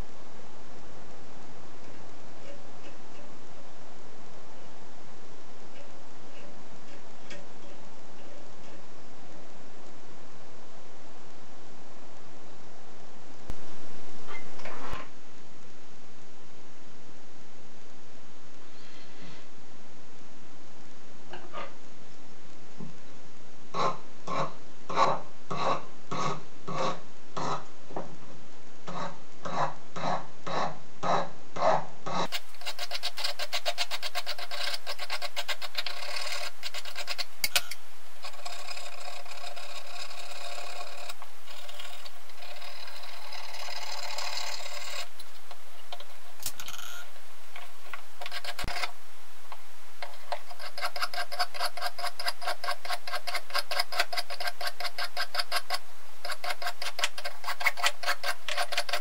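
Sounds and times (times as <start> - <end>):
steady low hum: 0.0 - 59.0
hand file rasping on metal: 32.1 - 37.6, 50.3 - 59.0.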